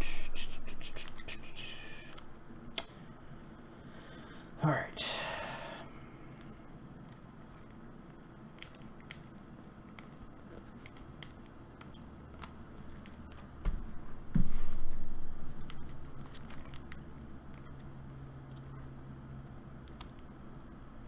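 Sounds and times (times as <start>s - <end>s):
dull thumps: 13.6s - 15.2s.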